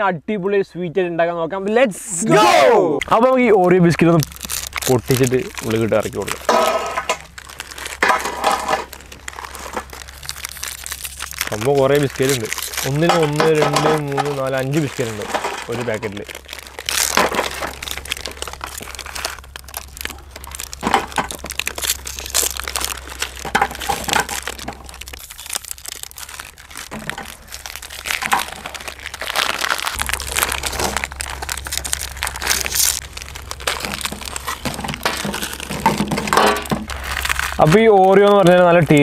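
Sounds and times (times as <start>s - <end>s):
plastic wrappers crinkling: 3.0s - 39.0s.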